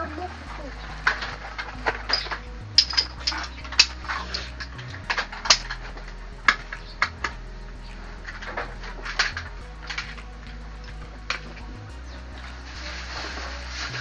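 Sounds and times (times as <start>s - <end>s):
metal tools clinking: 0.7s - 7.4s.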